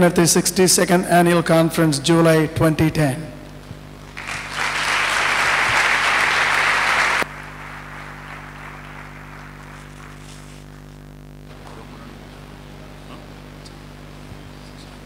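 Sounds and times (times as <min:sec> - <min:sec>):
low steady hum: 0:00.0 - 0:15.0
audience applauding: 0:04.1 - 0:10.6.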